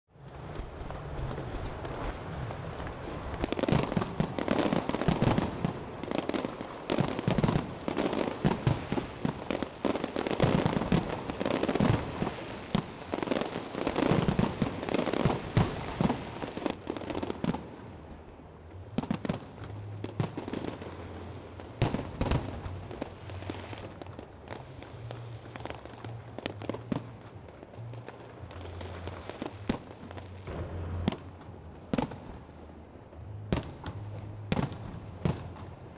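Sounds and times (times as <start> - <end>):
fireworks bangs and crackles: 0.1 - 35.9.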